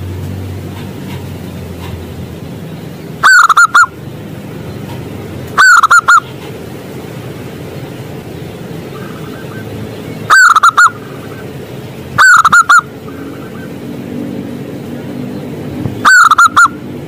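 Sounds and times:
dove cooing: 0:05.6 - 0:06.3, 0:10.3 - 0:11.4, 0:12.2 - 0:13.8, 0:16.0 - 0:16.8.

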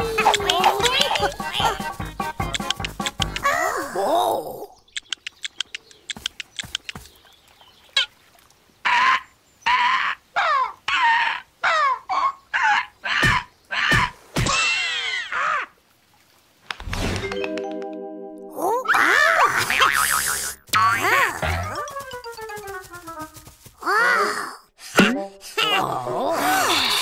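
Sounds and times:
cartoon bird clucking and squawking: 0:00.0 - 0:03.6
pecking taps: 0:02.4 - 0:03.4, 0:05.0 - 0:07.2.

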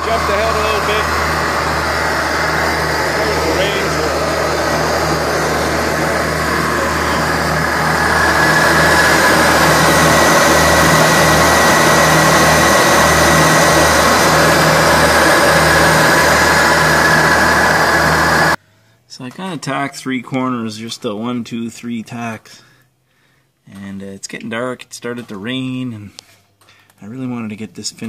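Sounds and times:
mower diesel engine running: 0:00.0 - 0:18.6
steady high whine: 0:00.0 - 0:18.6.

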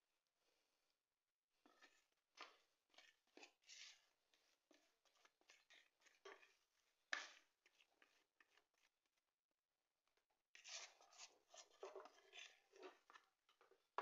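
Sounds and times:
spatula scraping a plastic bowl: 0:01.6 - 0:09.2, 0:10.5 - 0:14.0.

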